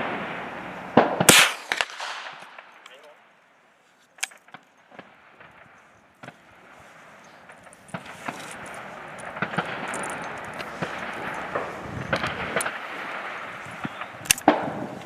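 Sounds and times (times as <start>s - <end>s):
rifle breech handled: 3.8s - 4.7s, 7.2s - 12.8s, 13.9s - 15.0s
steady rushing noise: 4.4s - 15.0s
metallic clicks and rattles: 7.5s - 11.4s.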